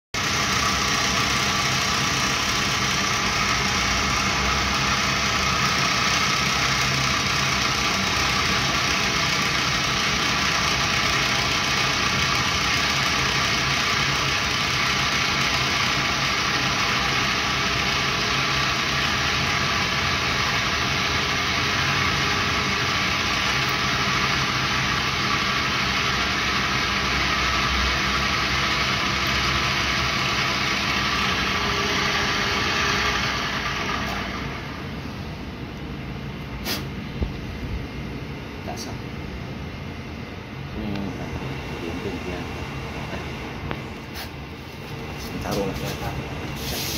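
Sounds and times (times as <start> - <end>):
drill press motor humming: 0.2 - 35.6.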